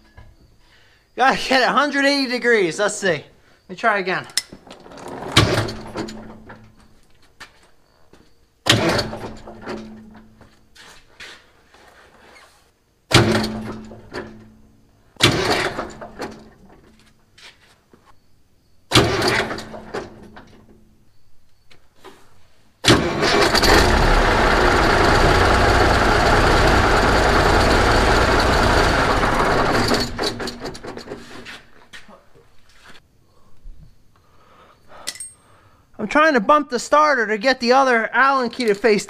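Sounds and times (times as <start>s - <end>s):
truck starter cranking diesel engine: 4.6s - 6.7s, 8.7s - 10.2s, 13.1s - 14.4s, 15.2s - 16.6s, 18.9s - 20.4s, 22.8s - 31.4s.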